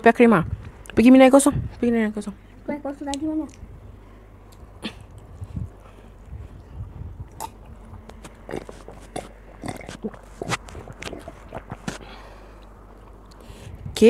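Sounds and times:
person chewing with wet mouth smacks: 4.5s - 13.5s
person sipping water: 4.5s - 13.6s.

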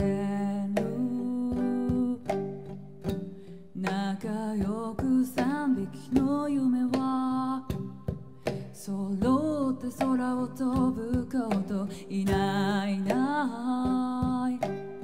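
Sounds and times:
strummed acoustic guitar: 0.0s - 15.0s
woman singing: 0.0s - 15.0s.

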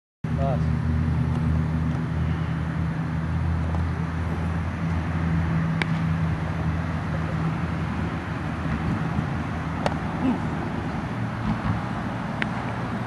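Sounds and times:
engine humming: 0.3s - 13.0s
sharp crack: 5.8s - 6.1s, 9.8s - 10.0s.

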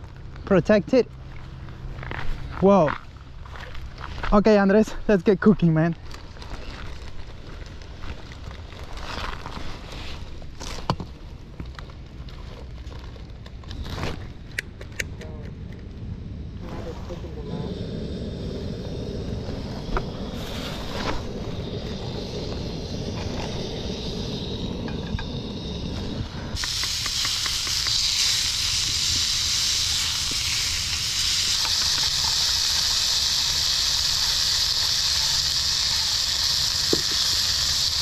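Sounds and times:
low steady rumble: 11.2s - 36.8s
meat sizzling in a skillet: 20.4s - 38.0s.

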